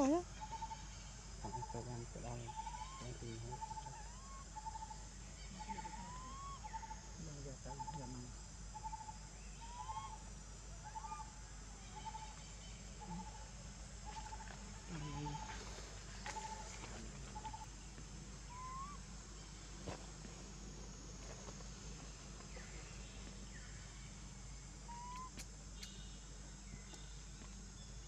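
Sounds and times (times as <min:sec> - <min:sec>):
insects droning: 0:00.0 - 0:28.0
bird calling trilled note: 0:18.5 - 0:19.0, 0:24.9 - 0:26.2.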